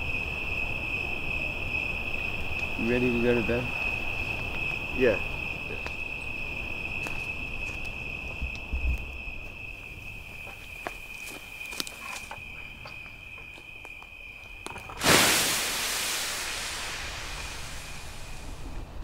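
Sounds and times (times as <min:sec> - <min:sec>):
campfire embers crackling: 0:00.0 - 0:19.0
crickets chirring: 0:00.0 - 0:19.0
loud rushing whoosh: 0:15.0 - 0:19.0.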